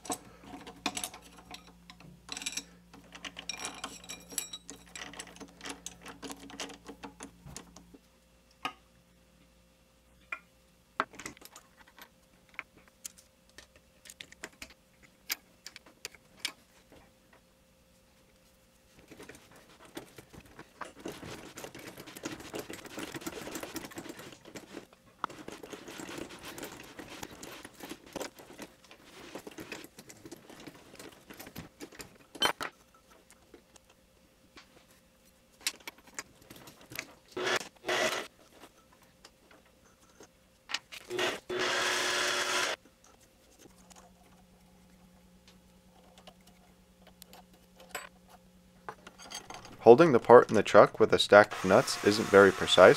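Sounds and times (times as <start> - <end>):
metal clicks and clinks: 0.0 - 7.3.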